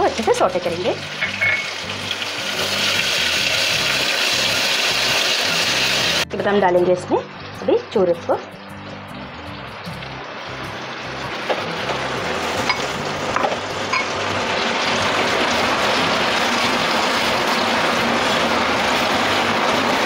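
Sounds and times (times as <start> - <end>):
food sizzling in hot oil: 0.0 - 20.0.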